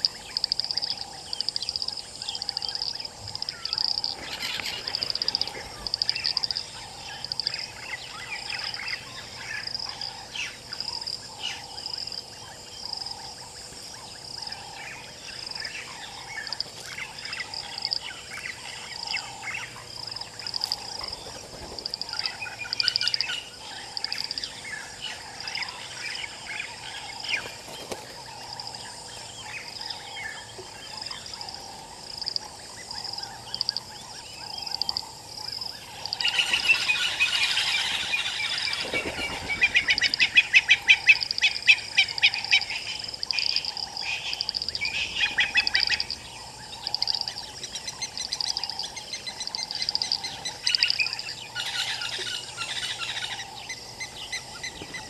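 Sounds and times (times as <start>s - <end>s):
rapid chattering calls: 0.0s - 12.0s, 18.6s - 29.0s, 35.7s - 55.0s
wild birds calling and chirping: 0.0s - 55.0s.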